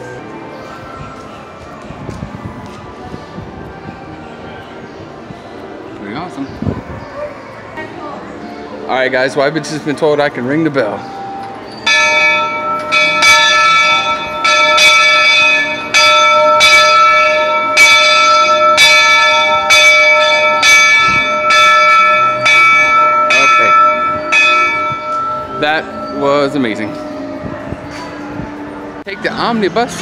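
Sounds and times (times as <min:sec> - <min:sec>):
locomotive bell ringing: 0:10.9 - 0:28.3.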